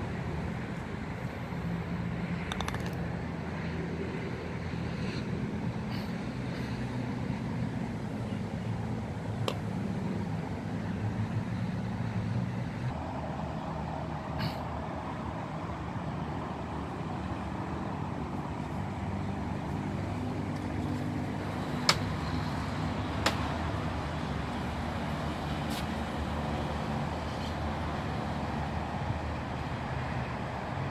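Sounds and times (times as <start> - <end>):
traffic noise: 0.0 - 30.9
sharp taps: 2.5 - 3.0.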